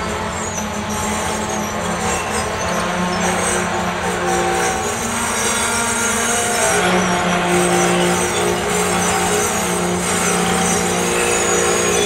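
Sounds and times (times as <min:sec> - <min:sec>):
freight train wheels rumbling: 0:00.0 - 0:12.0
wheels squealing: 0:00.0 - 0:12.0.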